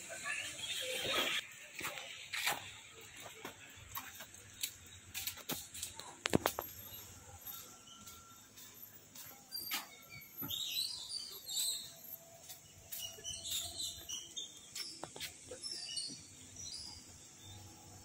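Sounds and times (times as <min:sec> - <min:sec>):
birds chirping: 0:09.2 - 0:18.0.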